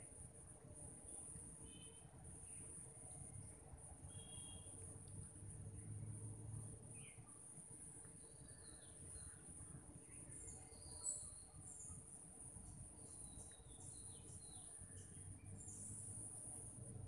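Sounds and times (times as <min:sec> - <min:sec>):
crickets droning: 0:00.0 - 0:17.0
bird chirps: 0:04.1 - 0:04.7.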